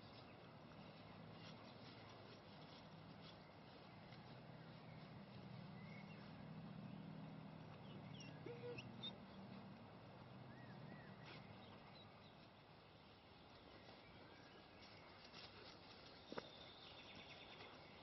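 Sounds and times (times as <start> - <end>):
small bird chirps: 7.7 - 9.3.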